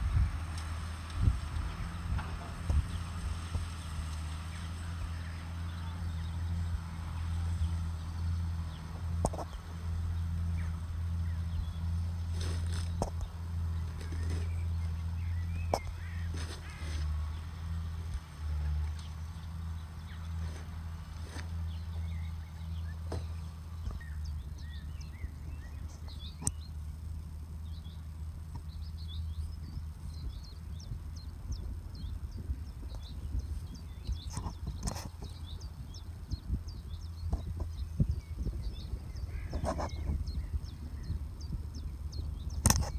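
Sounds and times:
distant tractor engine drone: 0:00.0 - 0:42.9
small birds chirping: 0:00.0 - 0:42.9
sharp click: 0:42.6 - 0:42.9.

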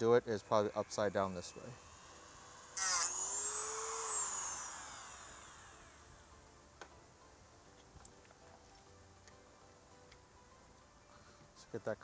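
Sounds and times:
rotary tool whining: 0:00.0 - 0:08.8.

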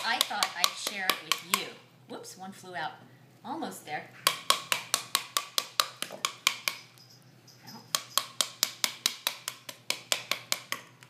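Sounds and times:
spoon beating pomegranate: 0:00.0 - 0:01.8, 0:04.2 - 0:11.0.

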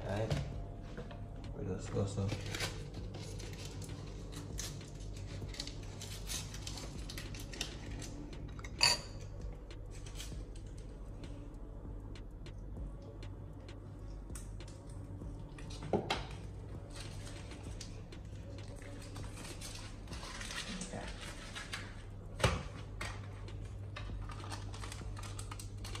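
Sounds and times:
steady low hum: 0:00.0 - 0:26.0
dishes and cutlery clinking: 0:08.5 - 0:09.3.

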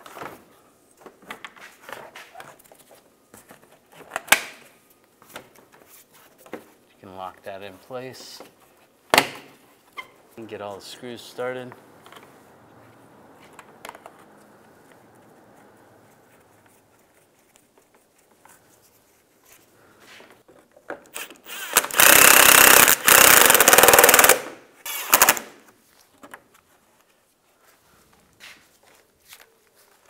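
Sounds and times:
cordless power tool driving screws: 0:21.1 - 0:25.5.

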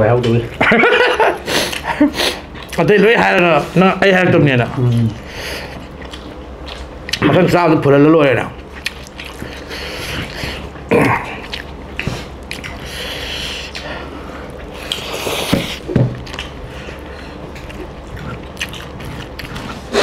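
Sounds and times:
chewing and lip smacks: 0:04.7 - 0:07.3, 0:08.5 - 0:20.0.

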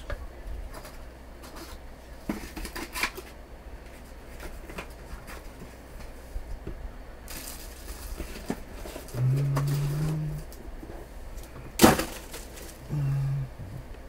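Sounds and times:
low hum: 0:06.3 - 0:14.0
cardboard rustling and scraping: 0:07.3 - 0:11.1.

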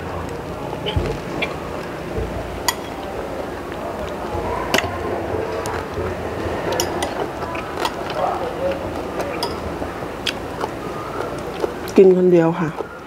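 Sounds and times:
chewing: 0:00.2 - 0:13.0
cutlery clinking on ceramic plate: 0:02.7 - 0:03.1, 0:09.4 - 0:09.7.

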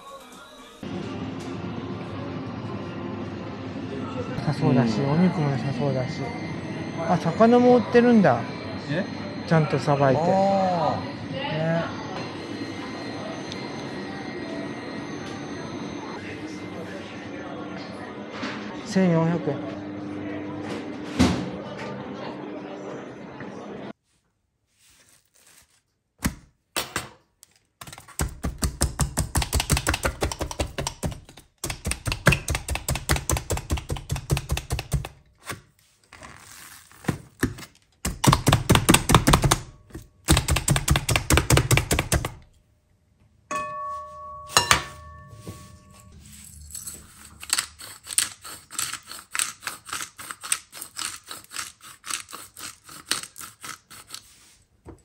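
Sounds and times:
soft rubbing strokes: 0:24.0 - 0:25.9, 0:45.0 - 0:46.6, 0:54.2 - 0:54.7.

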